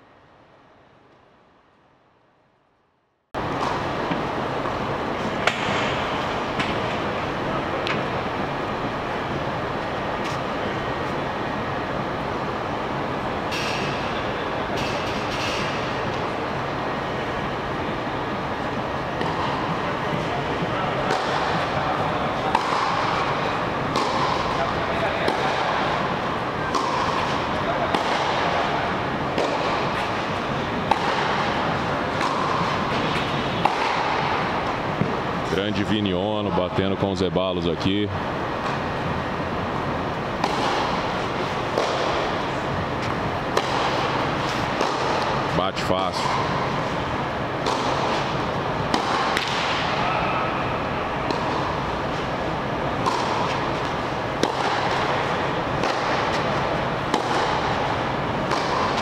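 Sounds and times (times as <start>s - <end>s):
steady background hiss: 0.0s - 59.0s
racket hitting tennis ball: 3.5s - 7.0s, 19.1s - 35.4s, 40.3s - 45.5s, 46.2s - 59.0s.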